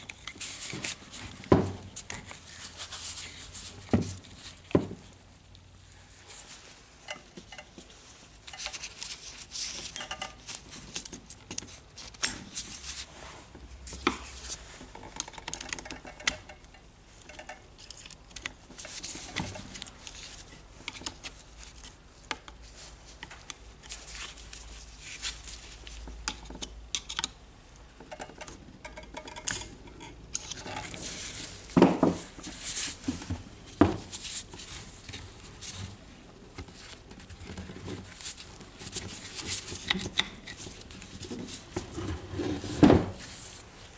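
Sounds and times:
light metallic clinks and scraping: 6.2 - 13.0, 13.9 - 20.6.

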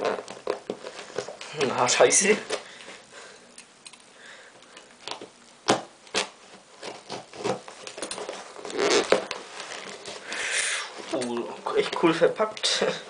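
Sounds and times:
paper crinkling and rustling: 6.1 - 10.3.

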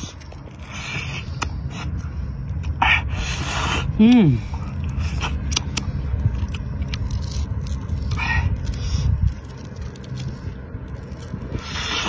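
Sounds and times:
low steady rumble: 0.0 - 12.0
wet mouth clicks and smacks: 5.3 - 5.9.

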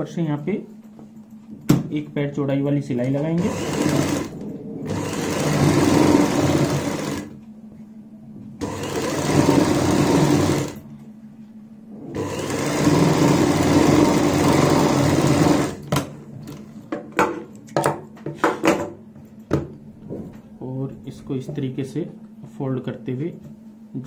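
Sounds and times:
sewing machine stitching: 3.4 - 7.4, 8.6 - 10.8, 12.1 - 15.9.

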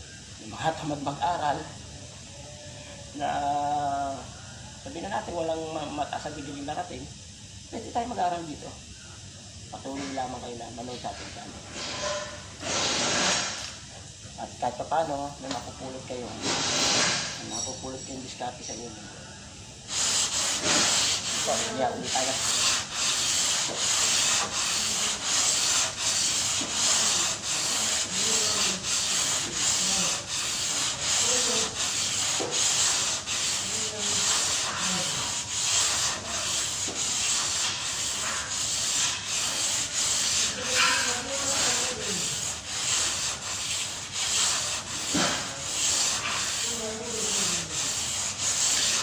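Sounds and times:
sandpaper rasping back and forth: 11.8 - 13.6, 15.4 - 18.0, 19.9 - 49.0.

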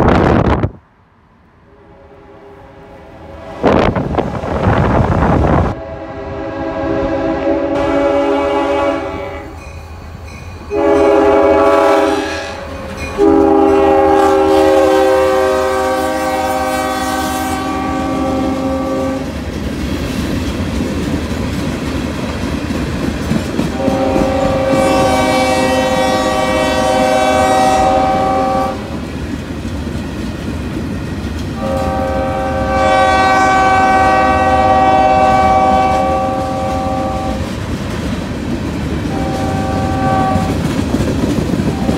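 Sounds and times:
freight cars rumbling over rails: 0.0 - 41.9
locomotive air horn chords: 5.7 - 9.6, 10.7 - 19.3, 23.7 - 29.0, 31.6 - 37.6, 39.1 - 40.7.

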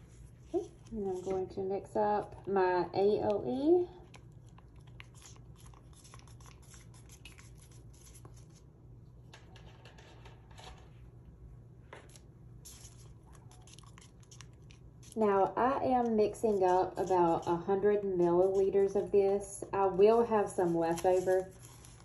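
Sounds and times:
plastic cups scratching and clicking: 9.4 - 10.9, 12.7 - 22.0.

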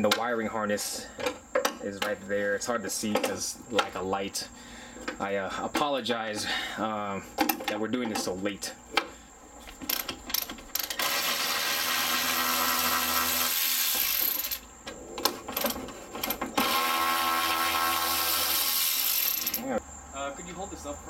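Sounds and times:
ratchet wrench clicking: 9.9 - 14.6, 18.2 - 19.7.

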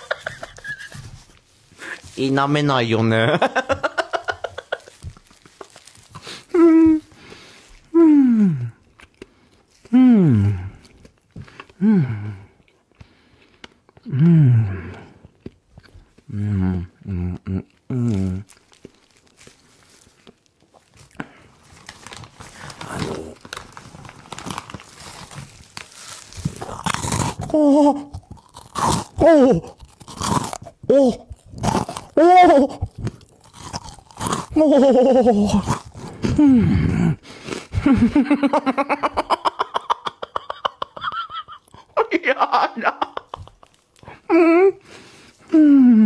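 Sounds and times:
man stifled laughing: 0.0 - 1.2, 3.3 - 5.1, 34.6 - 35.6, 36.2 - 43.7
plastic bag crinkling: 4.0 - 7.1, 18.4 - 27.5, 43.3 - 44.0.

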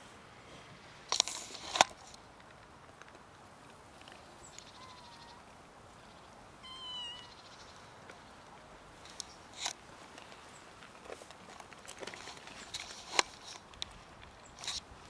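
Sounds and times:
cat meowing: 4.7 - 5.4, 6.6 - 7.4.

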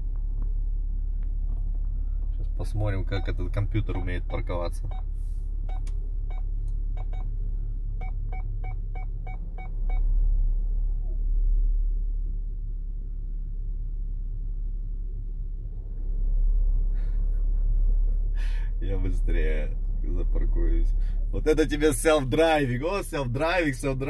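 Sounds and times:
low vehicle cabin rumble: 0.0 - 24.0
parking sensor beeping: 3.0 - 5.1, 5.7 - 7.3, 8.0 - 10.1.

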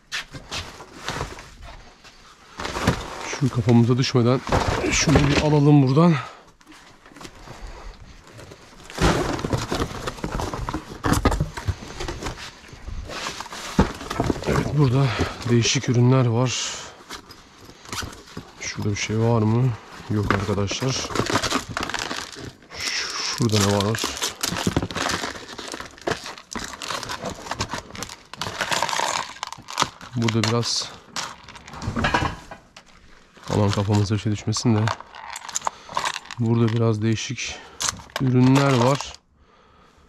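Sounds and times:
cardboard scraping and rustling: 2.5 - 5.9, 8.3 - 16.1, 17.0 - 22.7, 23.4 - 30.6.

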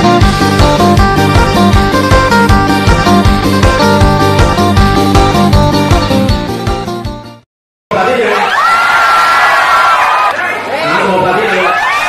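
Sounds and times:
guitar music: 0.0 - 7.4
crowd cheering and shouting: 7.9 - 12.0.

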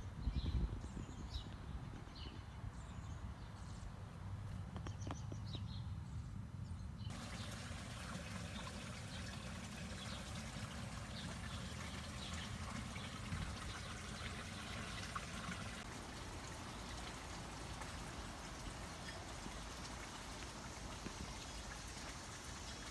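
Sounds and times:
steady hiss of water: 7.1 - 22.9.

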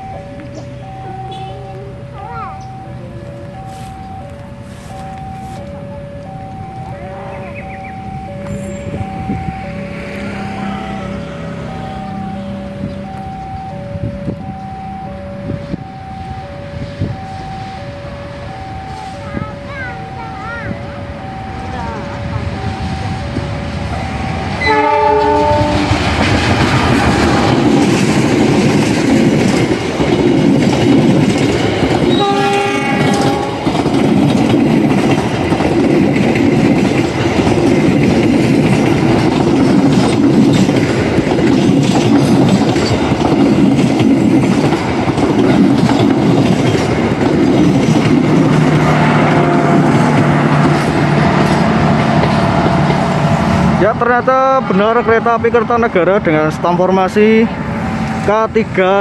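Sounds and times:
locomotive horn: 1.1 - 2.0, 21.6 - 26.2, 32.0 - 34.1, 48.5 - 55.5
train wheels clattering on rails: 18.4 - 59.0.

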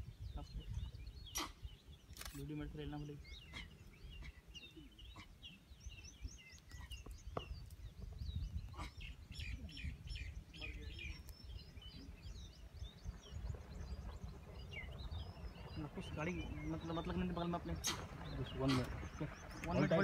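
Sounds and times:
small birds chirping: 0.0 - 20.0
low steady rumble: 10.1 - 20.0.

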